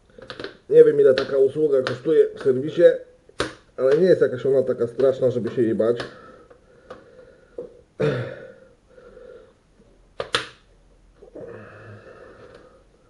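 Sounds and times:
person breathing loudly: 6.1s - 7.8s, 8.4s - 9.6s, 11.3s - 13.0s.

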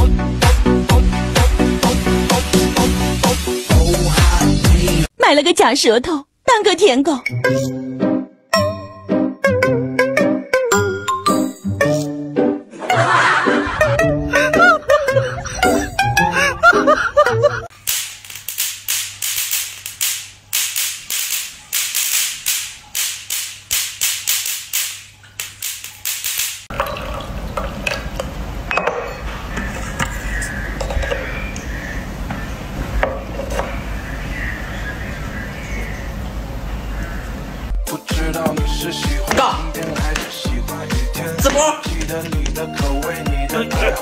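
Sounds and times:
music: 0.0s - 5.1s, 7.2s - 17.6s, 37.8s - 44.0s
electric swatter zapping: 17.7s - 26.7s
tea pouring: 26.7s - 28.5s
tea cups clinking: 26.7s - 31.4s.

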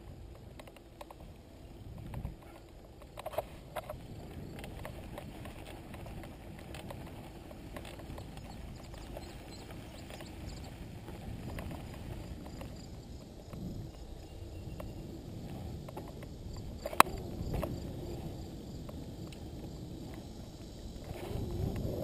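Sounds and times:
bike tyres rumbling: 0.0s - 22.0s
light clicks and rattles: 0.2s - 14.0s.

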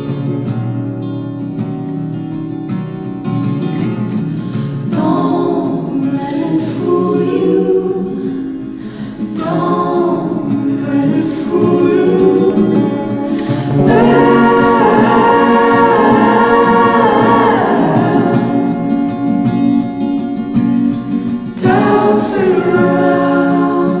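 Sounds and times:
song with sung vocals: 9.4s - 19.4s, 21.6s - 24.0s.

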